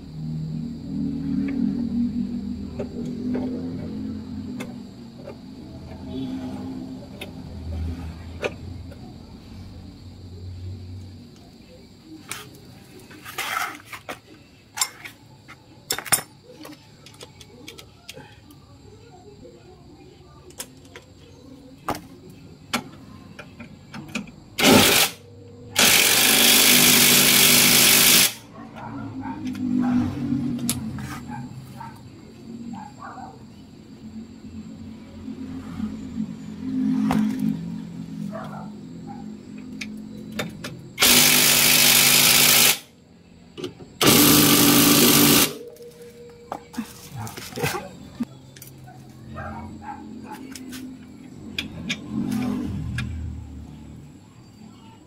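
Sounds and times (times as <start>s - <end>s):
impact wrench running: 24.6s - 25.2s, 25.8s - 28.4s, 41.0s - 42.9s, 44.0s - 45.6s.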